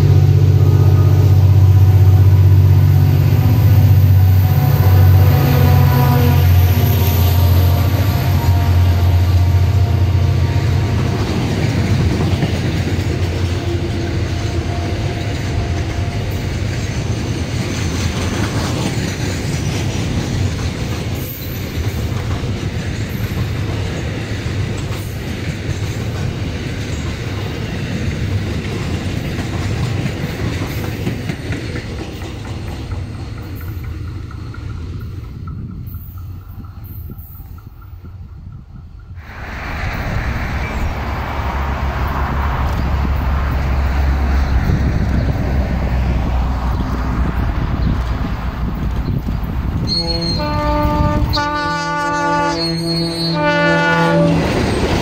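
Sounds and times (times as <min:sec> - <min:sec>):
diesel locomotive engine hum: 0:00.0 - 0:55.0
train wheels clattering over rails: 0:10.4 - 0:52.0, 0:54.1 - 0:55.0.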